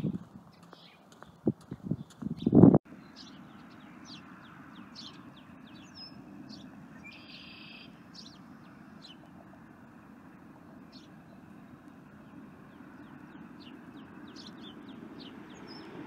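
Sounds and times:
small birds chirping: 0.0s - 16.0s
buzzy bird trill: 2.4s - 9.2s.

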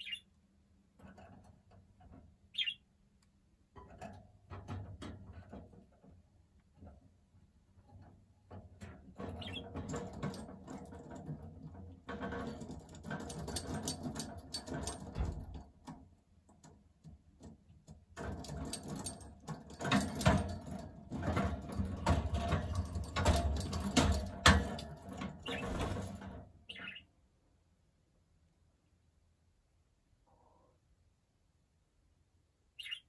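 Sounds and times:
budgerigar chattering: 0.0s - 0.2s, 2.6s - 2.8s, 26.7s - 27.0s, 32.8s - 33.0s.

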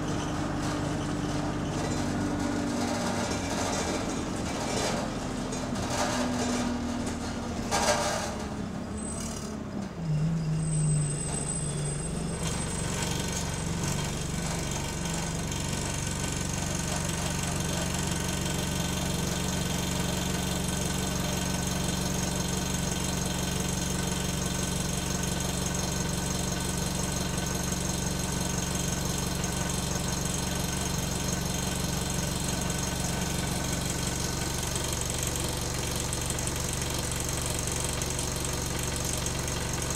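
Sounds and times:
bus diesel engine: 0.0s - 39.9s
high-pitched brake squeal: 8.0s - 14.4s.

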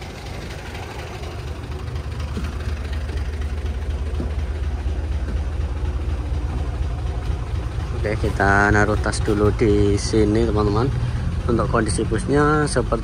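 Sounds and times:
diesel bus engine idling: 0.0s - 13.0s.

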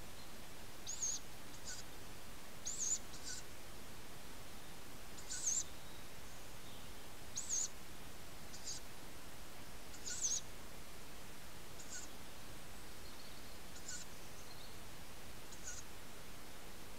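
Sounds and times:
steady hiss: 0.0s - 16.9s
owl chick begging calls: 0.8s - 1.9s, 2.6s - 3.5s, 5.2s - 5.7s, 7.4s - 7.8s, 8.5s - 8.8s, 9.9s - 10.5s, 11.8s - 12.1s, 13.7s - 14.1s, 15.5s - 15.9s.

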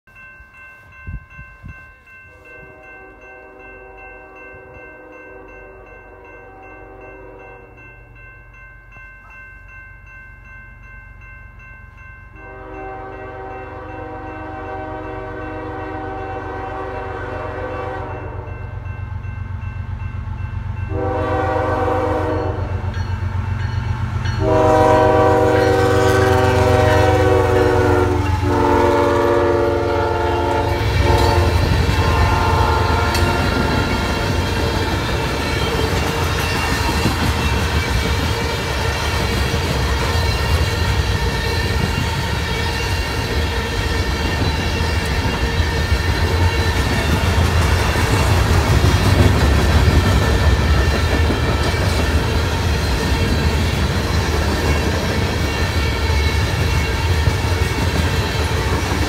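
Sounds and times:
crossing bell ringing: 0.1s - 59.0s
locomotive air horn blasts: 2.5s - 7.7s, 12.4s - 18.7s, 20.9s - 22.8s, 24.4s - 33.8s.

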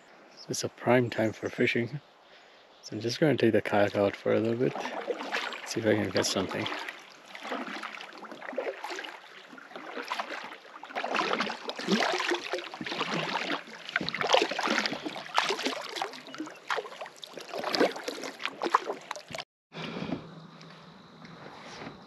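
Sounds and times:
paddle splashing in water: 4.2s - 19.4s
water dripping: 4.5s - 19.4s.

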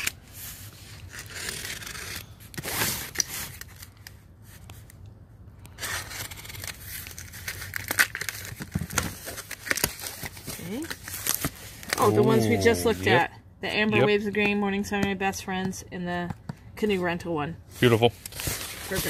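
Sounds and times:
packaging tearing and rustling: 0.0s - 4.9s, 5.6s - 12.2s, 18.1s - 19.0s.

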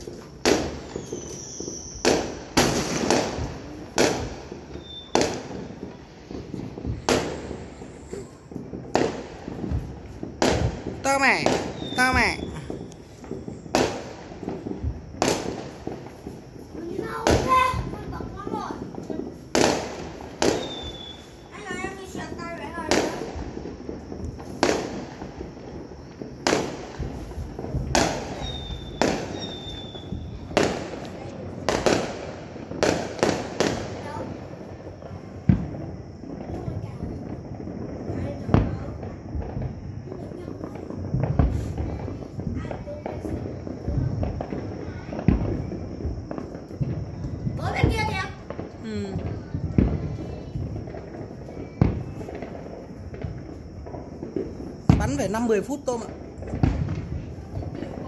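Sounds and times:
firework shells bursting: 0.0s - 58.0s
faint high whistle: 0.9s - 2.1s, 4.8s - 5.2s, 20.6s - 21.4s, 28.4s - 30.4s.

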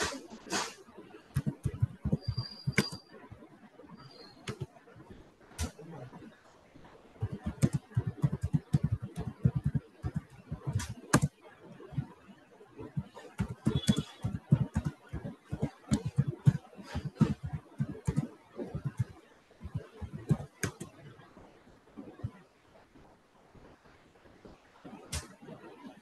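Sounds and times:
typing on computer keyboard: 13.4s - 20.8s.

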